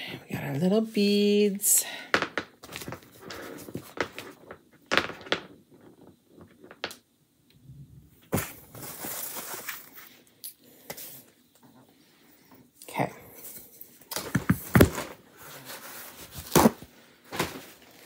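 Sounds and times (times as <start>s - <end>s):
wooden beads knocking: 3.8s - 7.0s
rustling handling noise: 8.2s - 10.3s.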